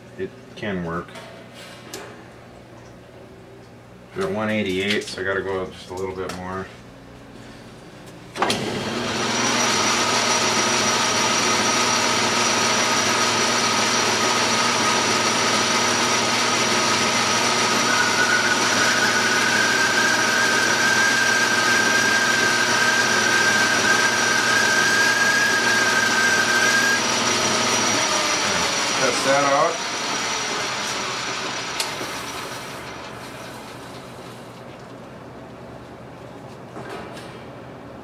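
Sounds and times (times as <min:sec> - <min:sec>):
metal lathe running: 0:08.7 - 0:33.7.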